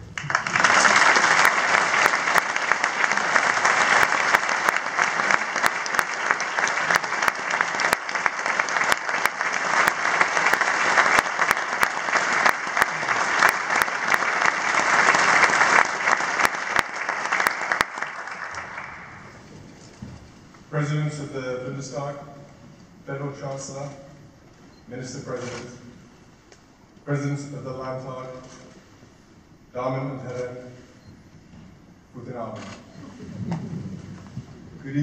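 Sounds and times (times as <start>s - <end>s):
audience applauding: 0.0s - 20.0s.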